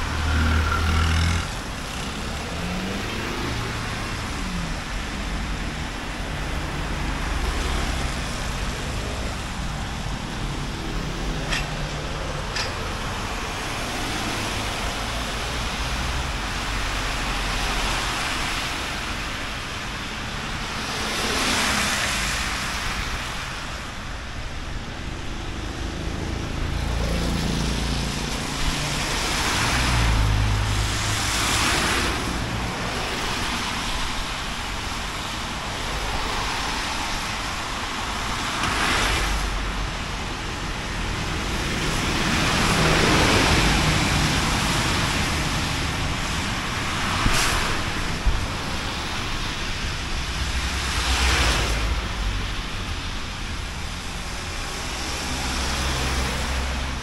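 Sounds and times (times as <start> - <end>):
car tyres hissing on wet road: 13.2 - 24.0, 26.7 - 57.0.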